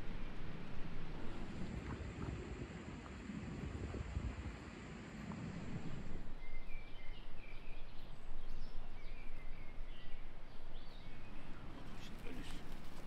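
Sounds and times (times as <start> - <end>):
wind rumble on microphone: 0.0 - 11.7
steady background hiss: 0.0 - 13.0
small birds chirping: 4.6 - 13.0.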